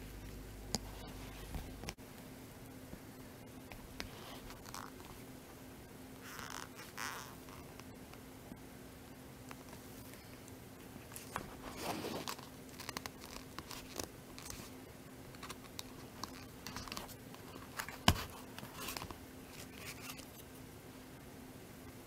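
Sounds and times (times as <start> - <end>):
faint steady hum: 0.0 - 22.0
hands rubbing and rustling wallet: 3.7 - 5.2, 10.9 - 20.6.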